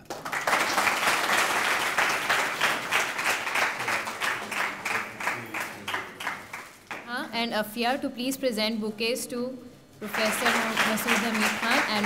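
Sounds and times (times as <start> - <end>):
audience applauding: 0.0 - 7.0, 10.0 - 12.0.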